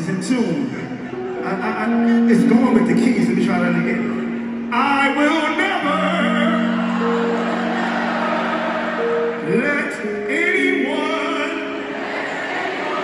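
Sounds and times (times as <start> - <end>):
people singing: 11.6 - 13.0.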